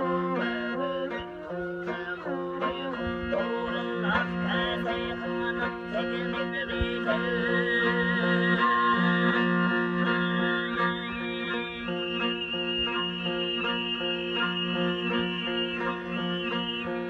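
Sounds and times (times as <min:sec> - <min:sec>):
bowed fiddle: 0:00.0 - 0:17.0
plucked lute: 0:00.0 - 0:17.0
overtone whistling melody: 0:08.5 - 0:17.0.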